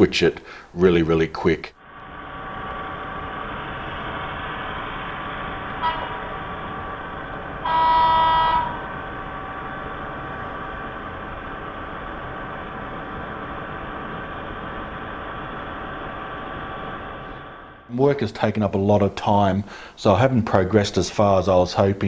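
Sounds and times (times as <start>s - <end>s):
model train running sound: 2.4s - 17.2s
model train horn: 5.7s - 6.8s, 7.6s - 9.0s.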